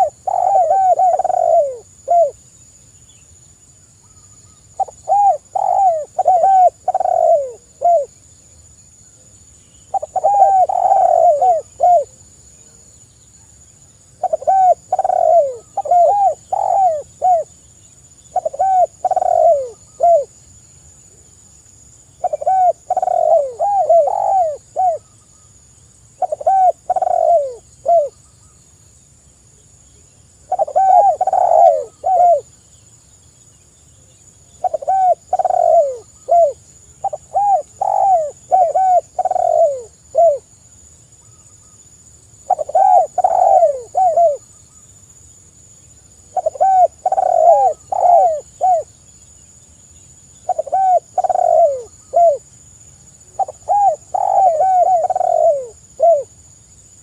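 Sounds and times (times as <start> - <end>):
dove cooing: 0.0 - 2.4, 4.7 - 8.1, 9.9 - 12.2, 14.2 - 17.5, 18.3 - 20.4, 22.2 - 25.2, 26.2 - 28.1, 30.5 - 32.5, 34.6 - 40.5, 42.4 - 44.5, 46.3 - 48.9, 50.4 - 52.5, 53.3 - 56.3.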